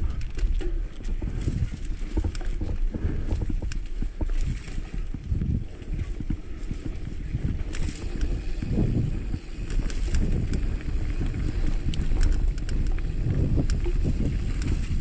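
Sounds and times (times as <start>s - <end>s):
bike clicks and rattles: 0.0s - 15.0s
wind buffeting microphone: 0.0s - 15.0s
tyres rumbling on dirt: 4.0s - 15.0s.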